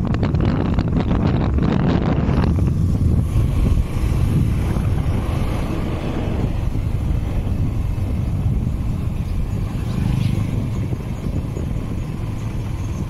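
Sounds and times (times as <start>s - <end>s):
engine and road noise: 0.0s - 13.0s
wind buffeting microphone: 0.0s - 13.0s.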